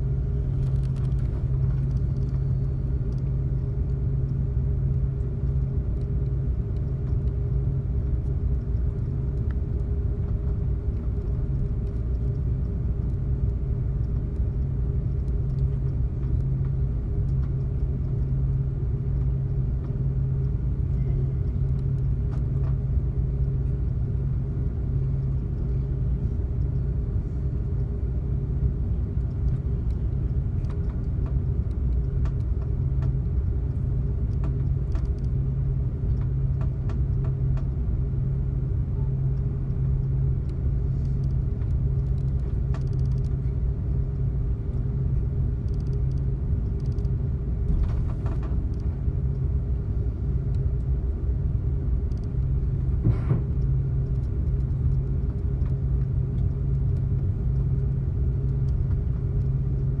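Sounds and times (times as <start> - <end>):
airplane cabin rumble: 0.0 - 60.0
faint clicks: 45.7 - 47.1, 52.1 - 52.5.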